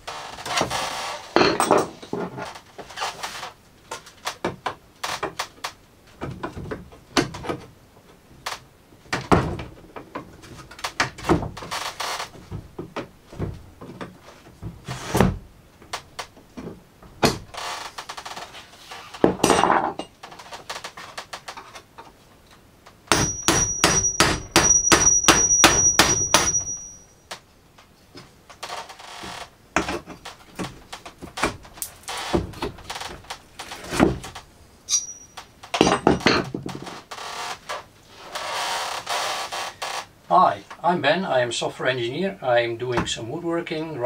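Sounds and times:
hammer knocking wooden pallet: 23.1 - 26.7.

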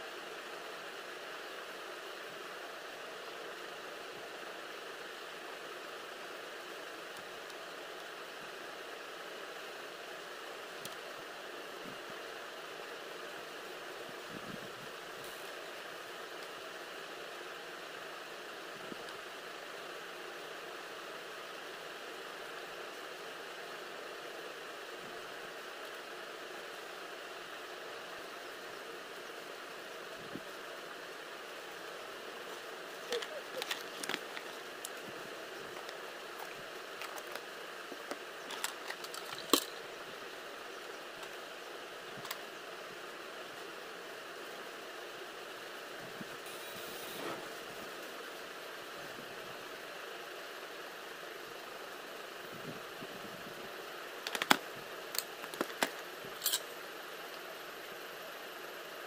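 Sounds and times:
steady hiss: 0.0 - 59.0
plastic makeup items clicking: 38.1 - 39.7, 54.3 - 54.6, 55.2 - 56.0.

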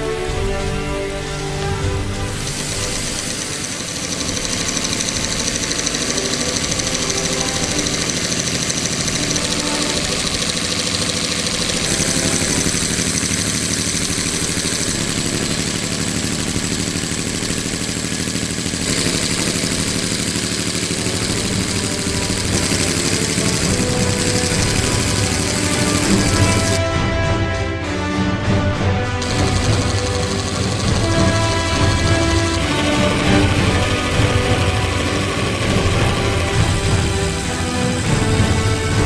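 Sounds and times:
miniature air engine chattering: 1.5 - 26.8, 29.2 - 39.0
tiny valvetrain clicking: 1.6 - 26.8, 29.2 - 39.0.

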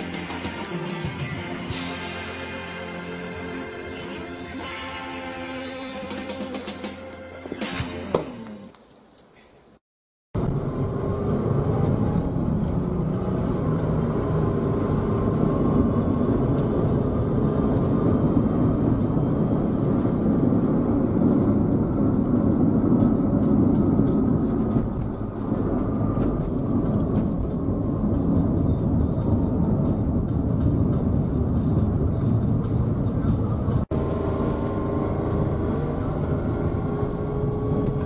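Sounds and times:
tyre noise: 4.0 - 9.6
car cabin road rumble: 10.4 - 38.0.

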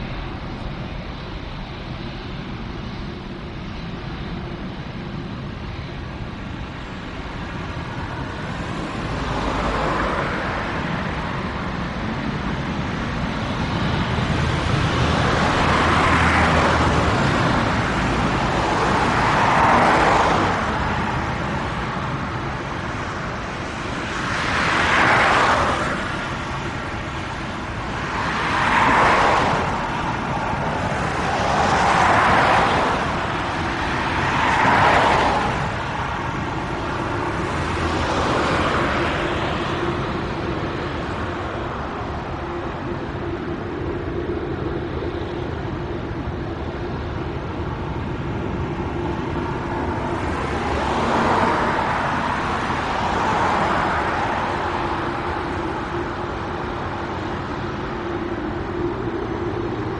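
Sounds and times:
jet engines rumbling: 0.0 - 59.9.

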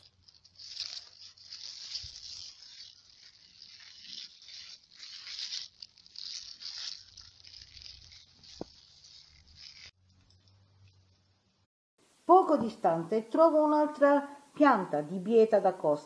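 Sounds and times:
leaves rustling and tearing: 0.0 - 10.0.

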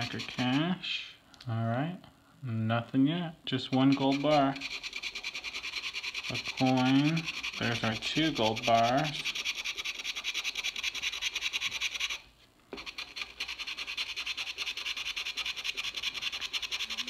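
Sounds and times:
coin scraping a ticket: 0.0 - 0.7, 3.6 - 12.2, 12.8 - 17.0.

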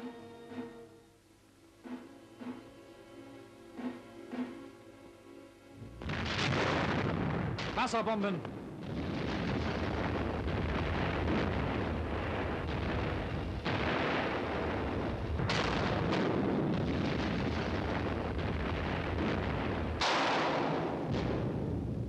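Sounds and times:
underwater explosions rumbling: 5.9 - 22.0.

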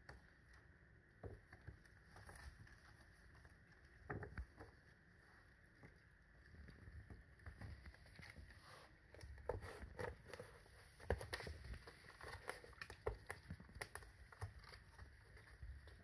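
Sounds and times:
kittens tapping and scuffing: 5.7 - 16.0.

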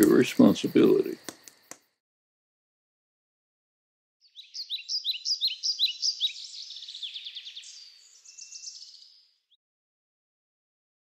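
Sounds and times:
songbird singing: 0.0 - 1.9, 4.2 - 9.6.

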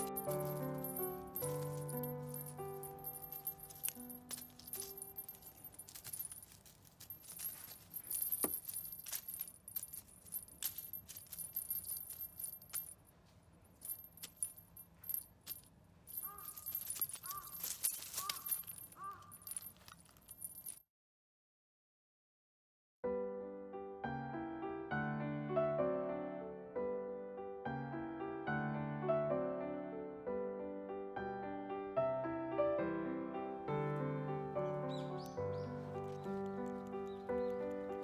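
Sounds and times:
toy bell jingling: 0.0 - 13.1, 13.7 - 20.8, 34.9 - 38.0.

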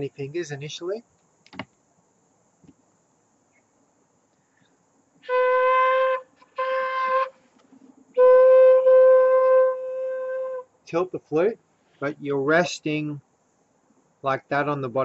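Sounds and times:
breathy flute note: 5.3 - 7.4, 8.2 - 10.6.

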